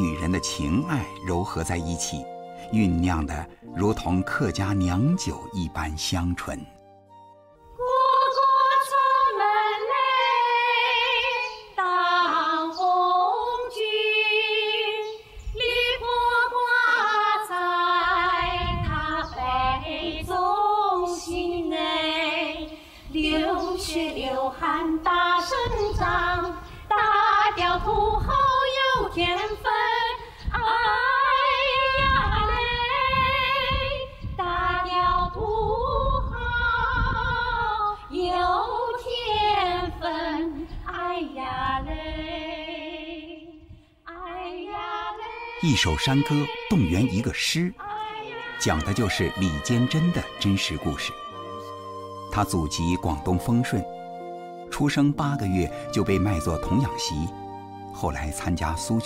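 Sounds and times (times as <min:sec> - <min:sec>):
women singing: 0:07.8 - 0:51.6.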